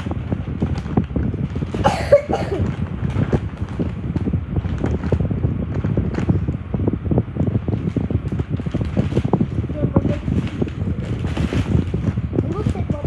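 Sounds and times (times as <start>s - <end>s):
clothing brushing microphone: 7.7s - 13.0s.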